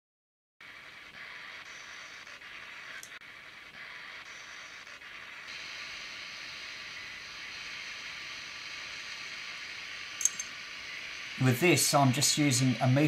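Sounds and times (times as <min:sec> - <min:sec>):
radio static hiss: 0:00.6 - 0:13.0
sharp click: 0:10.2 - 0:10.5.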